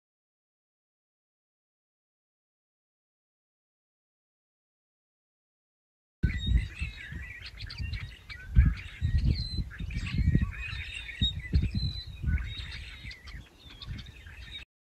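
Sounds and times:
small birds chirping: 0:06.2 - 0:14.7.

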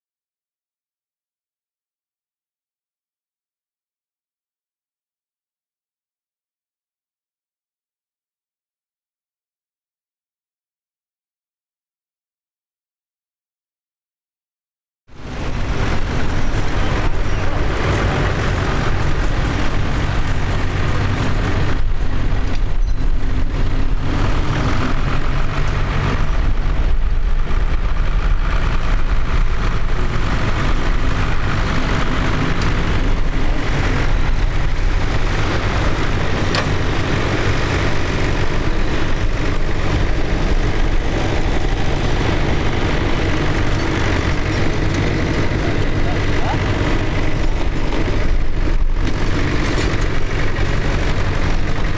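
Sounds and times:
tractor diesel engine under load: 0:15.1 - 0:51.9.

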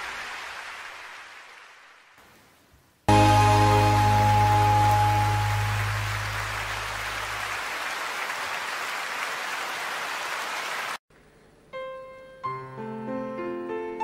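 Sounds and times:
audience applause: 0:00.0 - 0:01.8, 0:03.1 - 0:11.0
band's low note: 0:03.1 - 0:07.5
piano notes and chords: 0:03.1 - 0:07.5, 0:11.7 - 0:14.0.

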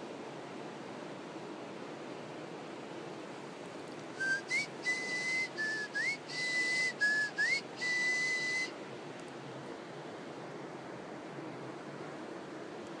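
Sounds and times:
person whistling a tune: 0:04.2 - 0:08.7.

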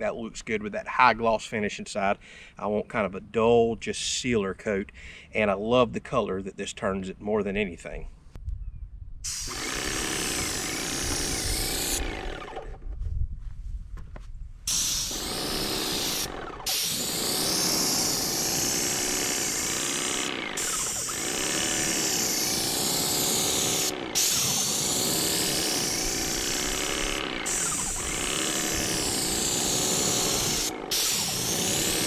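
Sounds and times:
paint sprayer hissing: 0:09.3 - 0:12.6, 0:14.7 - 0:32.0.

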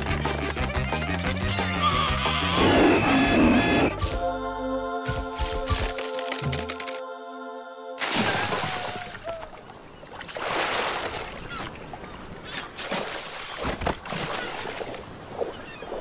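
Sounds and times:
cartoon squeals and grunts: 0:01.5 - 0:03.9
cartoon water splashing: 0:08.0 - 0:09.5.

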